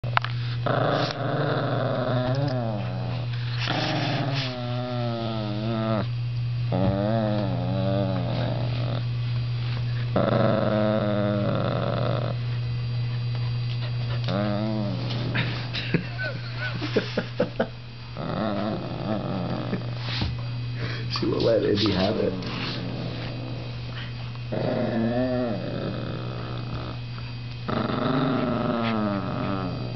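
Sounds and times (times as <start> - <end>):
steady low hum: 0.0 - 29.9
dog growling and snarling: 0.5 - 6.1, 6.7 - 9.1, 10.1 - 12.5, 14.1 - 16.8, 18.2 - 20.2, 21.6 - 29.9.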